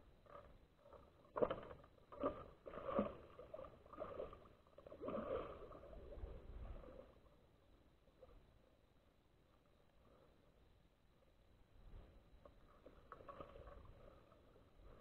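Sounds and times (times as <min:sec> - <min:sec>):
fish splashing and thrashing in water: 0:00.2 - 0:06.3.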